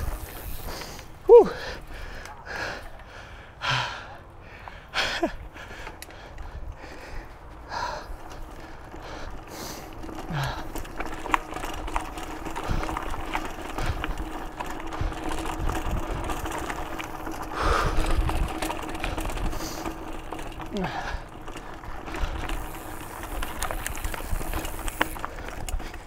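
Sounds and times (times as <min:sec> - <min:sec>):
freewheel hub ratcheting: 0:00.0 - 0:01.2, 0:08.2 - 0:26.0.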